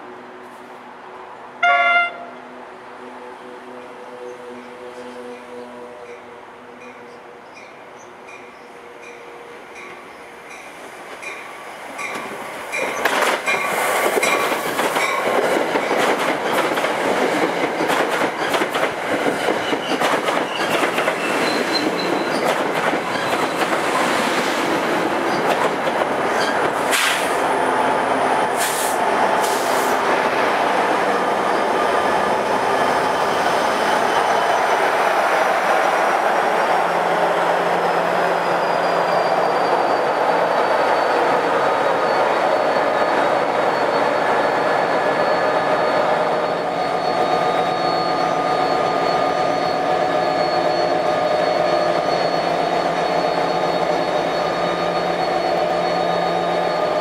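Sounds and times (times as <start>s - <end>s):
rushing rail noise: 0.0s - 57.0s
train wheels clattering over rail joints: 12.0s - 24.0s.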